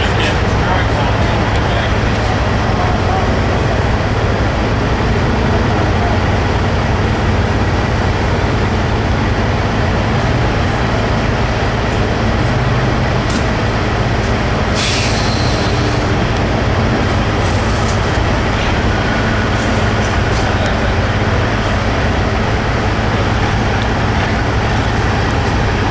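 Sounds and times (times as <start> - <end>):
diesel engine idling: 0.0 - 25.9
air hiss: 14.8 - 16.1.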